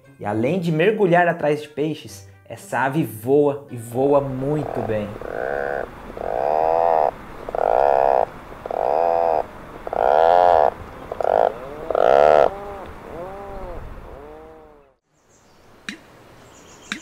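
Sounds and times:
puffin calling: 0:04.3 - 0:14.9.

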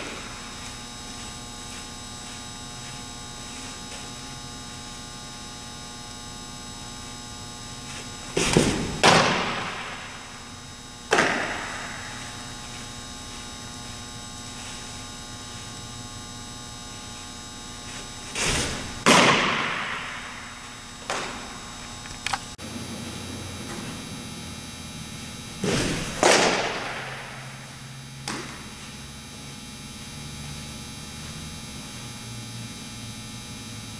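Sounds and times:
electrical hum: 0:00.0 - 0:33.9
ball smacking into glove: 0:11.1 - 0:11.8.

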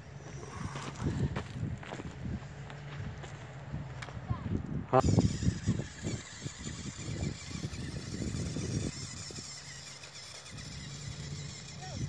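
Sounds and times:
toy truck motor whining: 0:00.0 - 0:01.3, 0:05.0 - 0:12.0.

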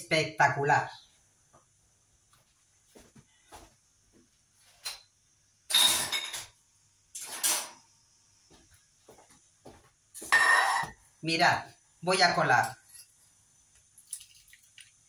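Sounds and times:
cookware clattering: 0:05.7 - 0:06.6.

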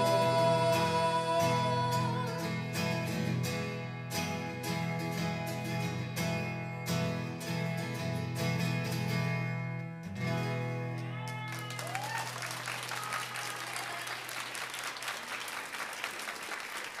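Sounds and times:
acoustic guitars strumming: 0:00.0 - 0:11.7
audience applauding: 0:11.2 - 0:17.0.

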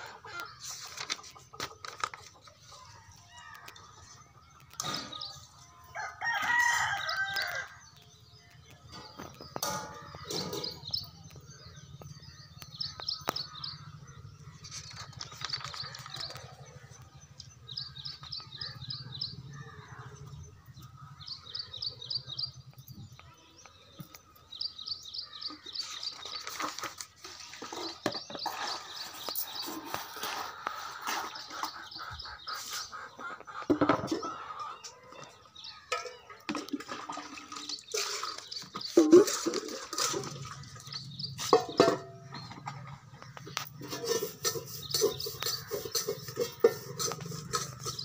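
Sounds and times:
birds chirping trills: 0:00.0 - 0:48.0
paper pages rustling: 0:00.7 - 0:02.6, 0:14.7 - 0:16.5.

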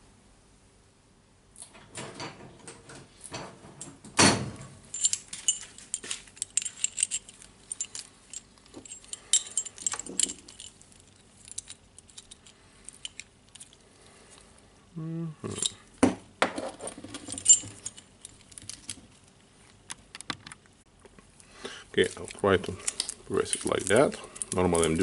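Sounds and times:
steel parts clinking: 0:04.9 - 0:14.4, 0:15.5 - 0:15.9, 0:16.8 - 0:19.0, 0:22.0 - 0:25.0.

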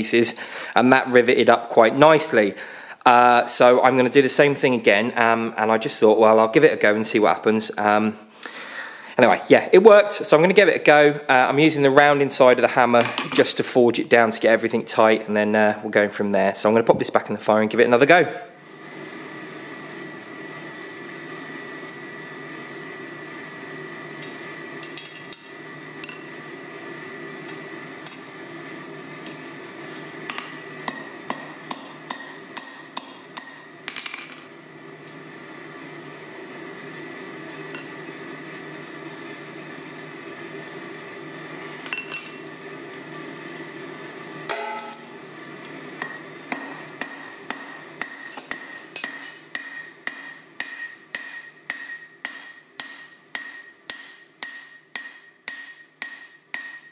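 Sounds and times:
hammer striking rivet on anvil: 0:30.3 - 0:34.4, 0:44.5 - 0:45.1, 0:46.0 - 0:56.9.

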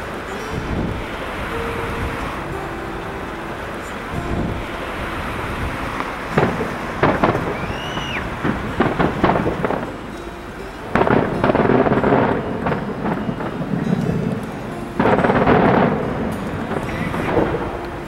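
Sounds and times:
firework whistle: 0:00.0 - 0:14.3
low rumble: 0:00.0 - 0:17.9
fireworks bangs: 0:00.0 - 0:18.0
fireworks crackling: 0:00.0 - 0:18.0.

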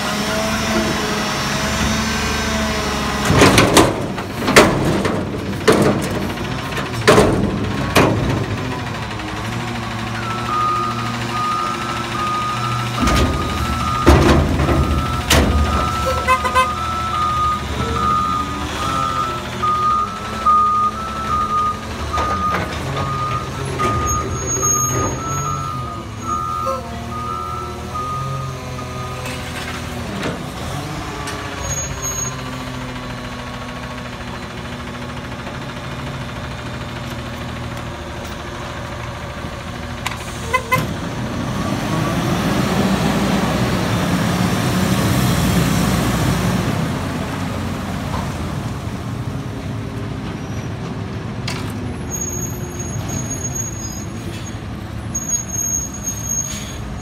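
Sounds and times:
diesel truck engine running: 0:00.0 - 0:57.0
reversing beeps: 0:10.2 - 0:29.4
air brake release: 0:56.2 - 0:56.9.

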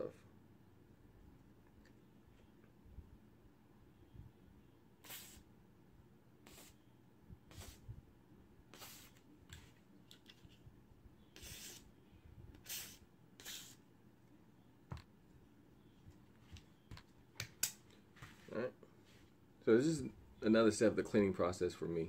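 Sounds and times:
aerosol spray hissing: 0:05.0 - 0:05.4, 0:06.4 - 0:06.8, 0:07.5 - 0:07.8, 0:08.8 - 0:09.2.

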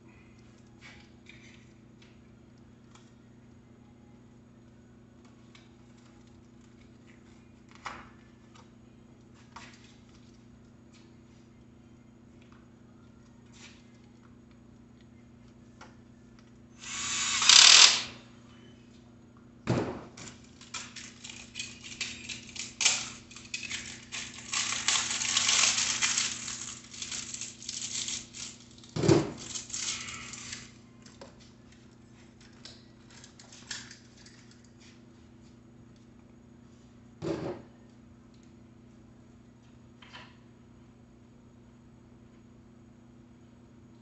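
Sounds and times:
low electrical hum: 0:00.0 - 0:44.0
cordless drill running: 0:16.8 - 0:18.2
packaging rustling and crinkling: 0:20.6 - 0:30.6.

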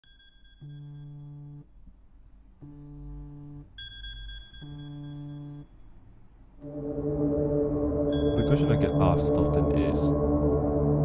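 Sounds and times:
phone alarm buzzing: 0:00.5 - 0:01.7, 0:02.6 - 0:05.7
thin high tone: 0:06.6 - 0:10.2.

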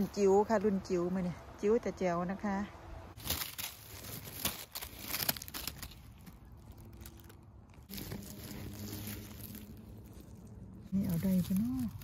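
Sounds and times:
pine needles and twigs crackling: 0:03.1 - 0:12.0.

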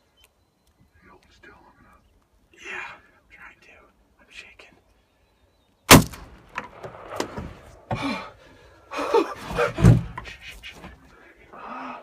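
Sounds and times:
shotgun blast: 0:05.9 - 0:07.6
loud thumps: 0:05.9 - 0:08.2, 0:09.5 - 0:10.4.

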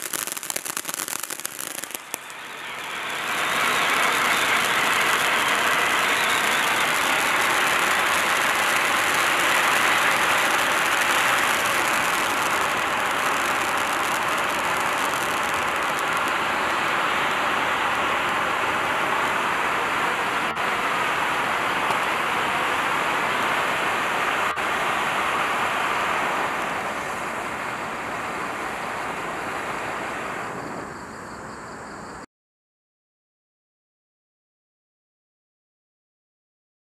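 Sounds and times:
firework fountain hissing: 0:00.0 - 0:31.0.

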